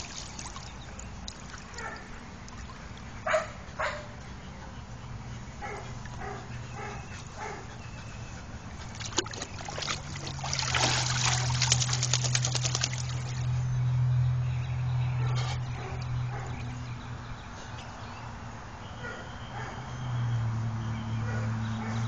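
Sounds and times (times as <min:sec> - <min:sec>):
water running from a hose: 0:00.0 - 0:02.0, 0:09.1 - 0:13.6
dog splashing in water: 0:00.0 - 0:03.2, 0:08.6 - 0:13.6.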